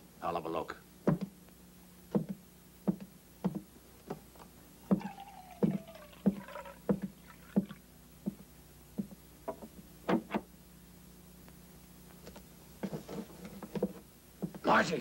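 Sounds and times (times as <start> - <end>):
coffee pouring into a mug: 4.9 - 7.8
footsteps: 12.2 - 14.6.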